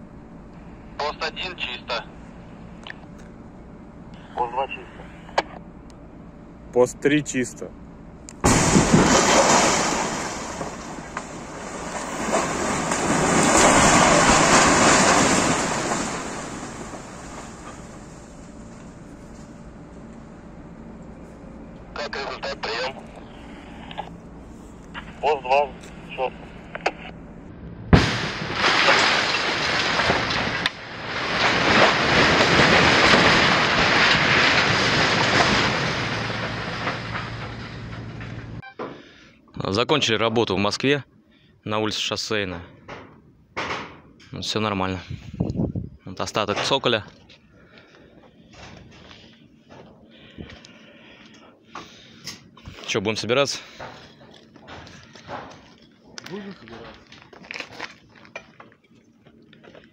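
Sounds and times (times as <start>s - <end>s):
rumble of falling smokestack: 7.2s - 38.6s
sharp crack: 8.3s - 18.9s, 27.9s - 38.6s
explosive blast: 8.4s - 18.4s, 27.8s - 38.4s
falling masonry crash: 8.4s - 19.6s, 27.9s - 39.2s, 46.3s - 59.9s.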